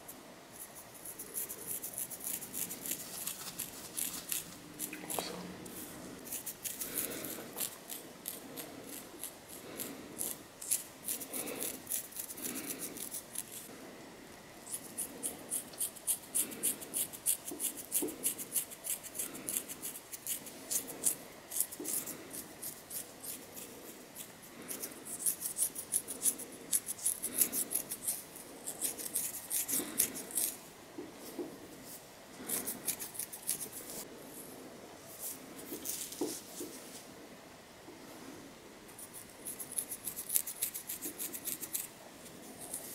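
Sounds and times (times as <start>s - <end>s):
fingernails scratching scalp: 0.6s - 13.7s, 14.7s - 30.6s, 32.4s - 34.1s, 39.0s - 41.9s.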